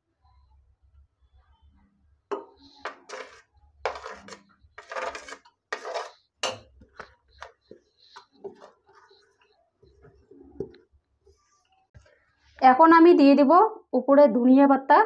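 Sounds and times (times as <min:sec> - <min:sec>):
spoon knocking on metal pot: 0:02.3 - 0:08.7
spoon scraping a plate: 0:02.3 - 0:10.8.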